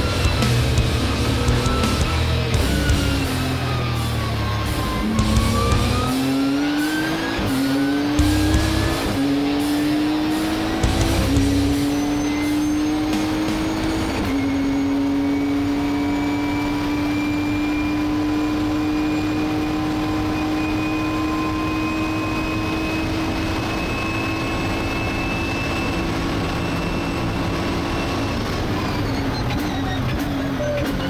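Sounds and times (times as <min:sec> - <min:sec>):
gear change: 0:00.0 - 0:31.0
high whine: 0:00.0 - 0:31.0
race car engine accelerating: 0:00.0 - 0:31.0.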